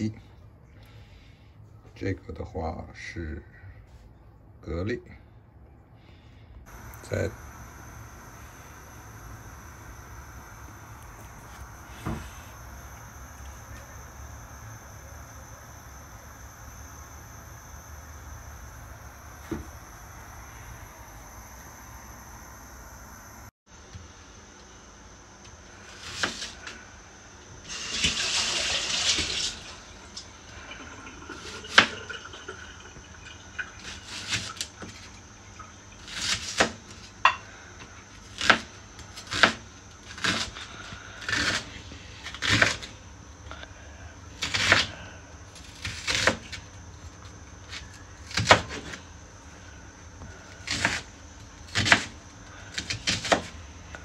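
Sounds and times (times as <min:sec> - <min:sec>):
tap running: 0:19.4 - 0:19.8
knife slicing onion on board: 0:25.9 - 0:26.6, 0:36.1 - 0:37.4, 0:38.2 - 0:42.9, 0:45.6 - 0:46.6, 0:47.7 - 0:49.0, 0:50.6 - 0:51.1, 0:51.7 - 0:52.2, 0:52.8 - 0:53.6.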